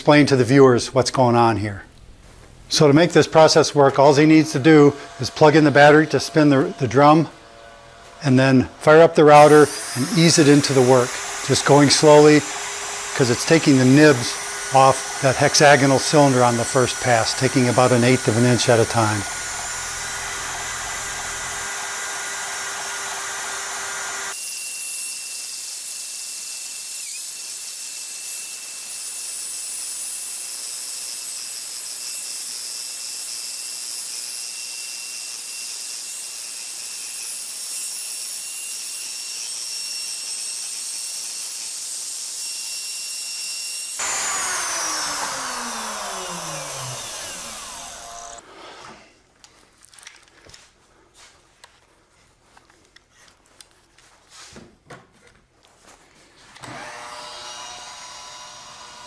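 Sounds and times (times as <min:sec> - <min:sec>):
router whining and cutting wood: 0:02.6 - 0:49.1, 0:56.5 - 0:59.0
router winding down: 0:04.2 - 0:48.4, 0:56.6 - 0:59.0.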